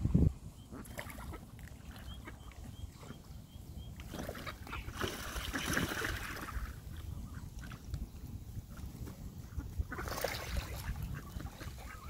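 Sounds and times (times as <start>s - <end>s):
water splashing: 0.8s - 2.7s, 4.0s - 7.8s, 9.9s - 12.0s.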